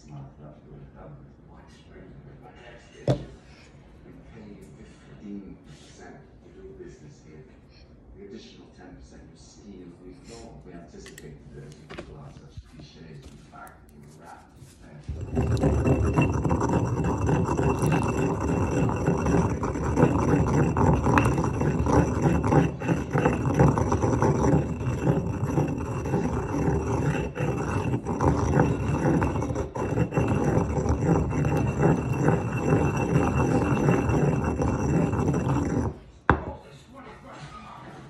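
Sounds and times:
stone pestle grinding in mortar: 15.0 - 36.5.

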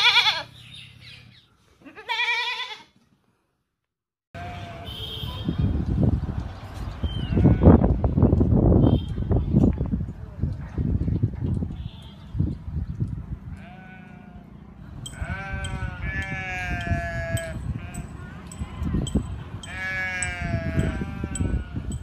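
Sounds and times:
goats bleating: 0.0 - 0.5, 1.8 - 2.9, 13.6 - 14.5, 15.1 - 18.0, 19.6 - 21.9.

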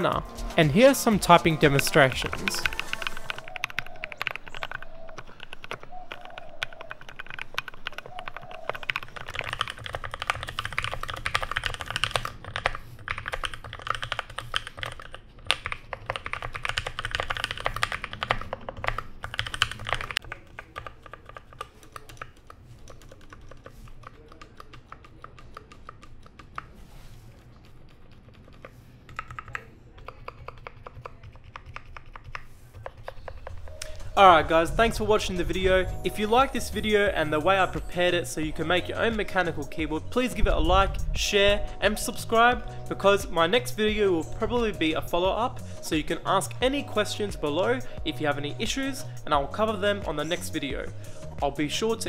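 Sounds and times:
mechanical keyboard typing: 0.0 - 37.9.

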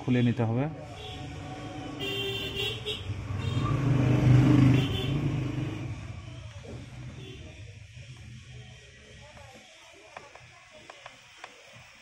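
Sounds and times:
motor vehicle passing: 0.8 - 7.6
vehicle horn toot: 1.0 - 5.8.

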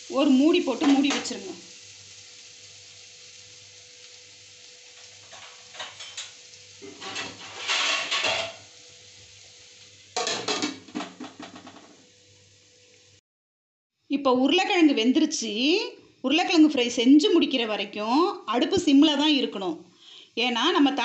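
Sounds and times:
potatoes sizzling in pan: 0.0 - 13.2, 14.6 - 21.0
metal lid clattering on pan: 5.3 - 8.6, 10.2 - 11.9
metal scraping and rattling: 5.3 - 8.6.

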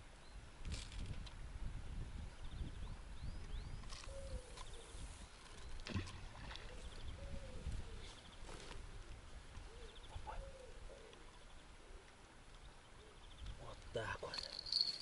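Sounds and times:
birds chirping and trilling: 2.4 - 5.9, 9.6 - 15.0.

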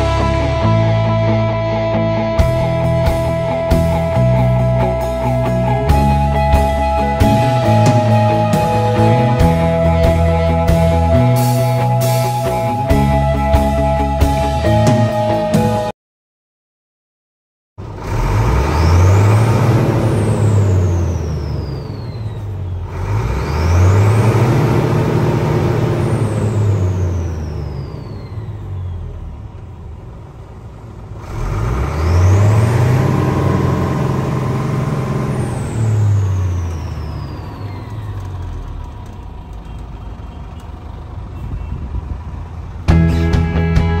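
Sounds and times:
diesel engine revving: 0.0 - 15.9, 17.8 - 44.0
high turbo whistle: 6.0 - 15.9.

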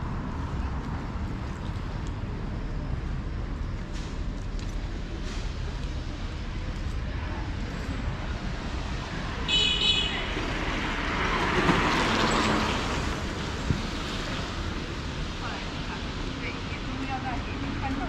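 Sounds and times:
low traffic rumble: 0.0 - 18.0
vehicle passing with a hiss: 10.1 - 17.8.

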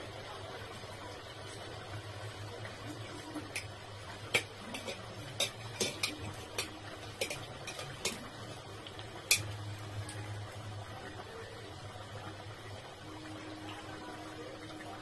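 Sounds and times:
metal spoon clinking on steel dishes: 4.3 - 8.2, 9.3 - 9.5.

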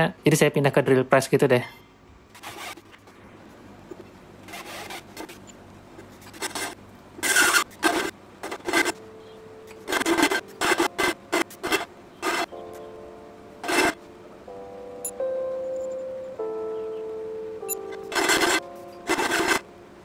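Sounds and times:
drill press hum: 6.3 - 12.6, 13.6 - 14.1, 17.7 - 19.7
hole saw grinding into steel: 6.4 - 9.0, 13.6 - 14.0, 18.1 - 19.6.

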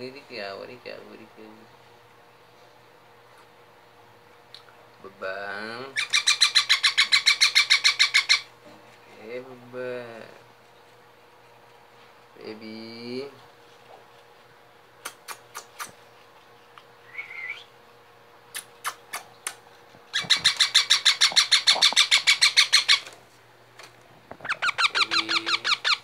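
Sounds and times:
parakeets chattering calls: 6.0 - 8.5, 20.1 - 23.1, 24.4 - 26.0.

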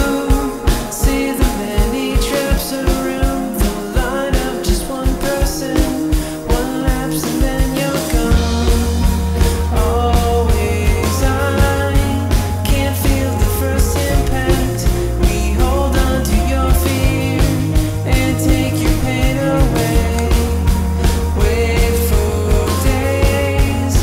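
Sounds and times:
rock music drum beat: 0.0 - 24.0
deep sustained bass: 8.2 - 24.0.

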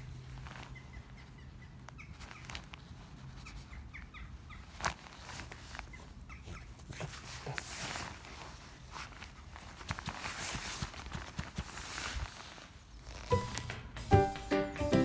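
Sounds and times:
small birds chirping: 0.0 - 9.8.

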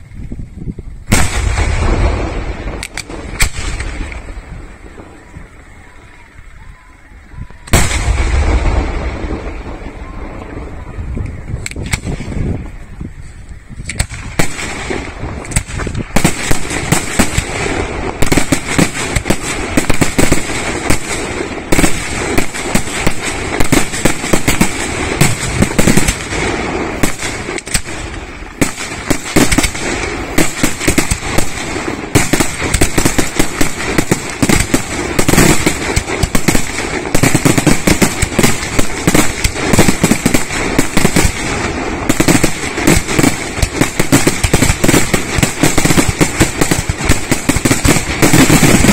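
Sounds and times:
firework shells bursting: 1.0 - 5.0, 13.8 - 48.9.

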